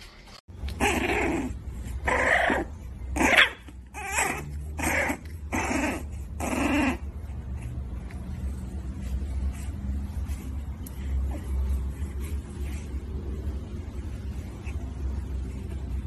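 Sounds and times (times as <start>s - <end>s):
puppy crying: 0.7s - 7.3s.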